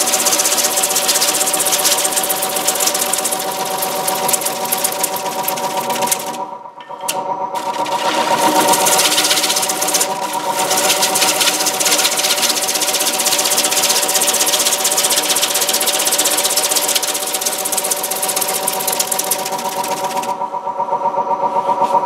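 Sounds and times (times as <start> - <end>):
wood lathe humming: 0.0 - 6.5, 7.1 - 20.4
gouge shaving wood hiss: 7.6 - 20.3.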